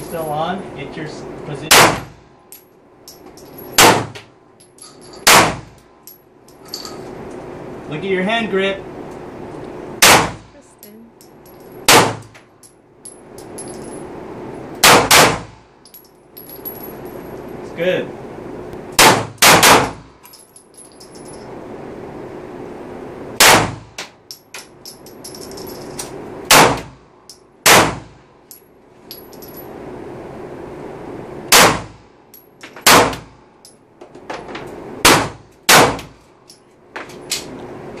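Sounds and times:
brass cases clinking: 2.5 - 3.8, 4.6 - 5.3, 6.0 - 7.2, 11.2 - 11.9, 12.5 - 14.1, 15.8 - 17.7, 20.2 - 21.5, 24.3 - 26.1, 28.5 - 29.7
pistol shots echoing indoors: 14.8 - 15.5, 19.0 - 20.0, 27.6 - 28.1, 35.0 - 36.1.

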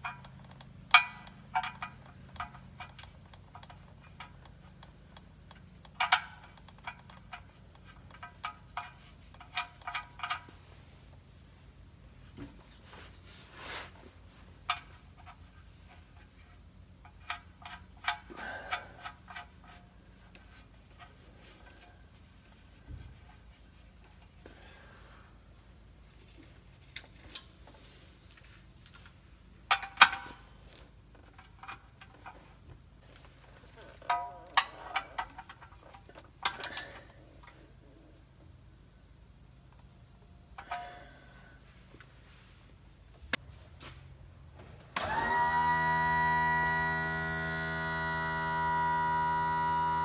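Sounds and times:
tools clinking on vehicle parts: 0.0 - 10.9, 29.6 - 37.6, 40.5 - 41.4.

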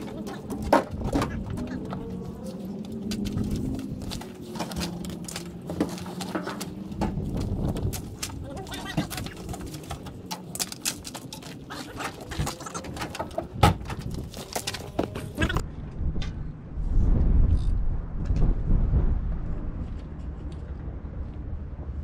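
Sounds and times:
fishing gear knocking and clattering: 3.0 - 15.2.

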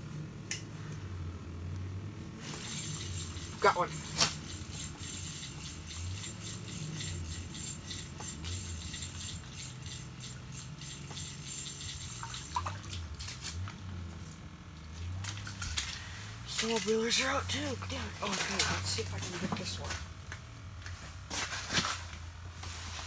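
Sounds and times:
low steady hum: 0.0 - 23.0
fishing reel clicking: 2.6 - 12.7.

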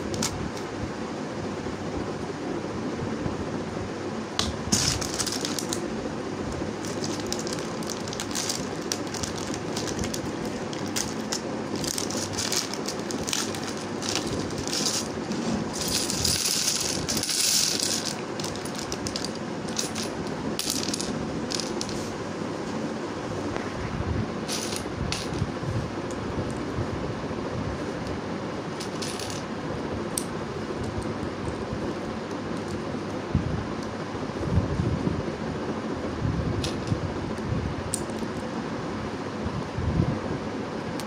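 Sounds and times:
plastic bricks clicking and rattling: 4.7 - 5.8, 6.8 - 22.0.

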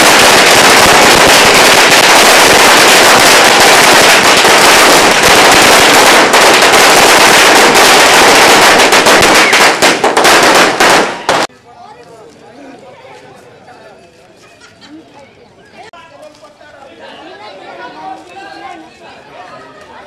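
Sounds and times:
firecrackers banging: 0.0 - 11.5.

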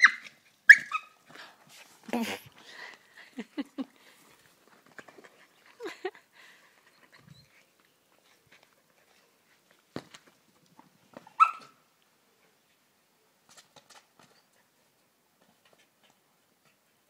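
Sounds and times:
dog barking: 11.4 - 11.7.

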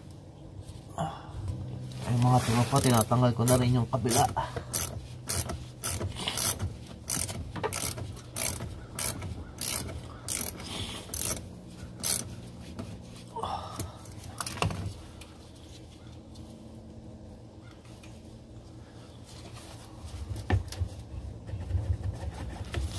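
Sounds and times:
ratchet wrench clicking: 3.4 - 12.3.

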